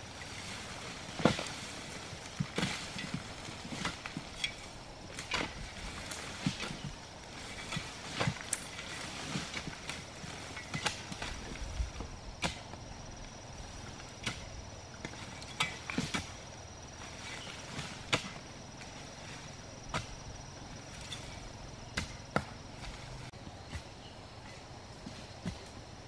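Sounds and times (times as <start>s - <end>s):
high insect drone: 0.0s - 26.0s
hoe chopping into earth: 12.4s - 12.8s, 17.8s - 18.4s, 21.9s - 22.9s.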